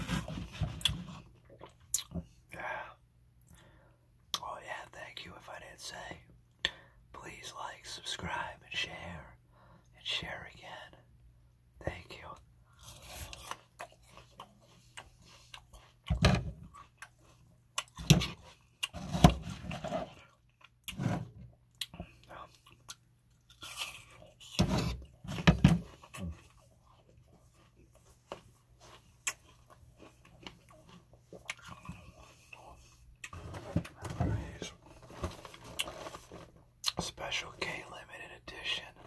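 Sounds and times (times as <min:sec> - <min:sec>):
person chewing and eating: 0:00.0 - 0:02.4, 0:12.7 - 0:37.1.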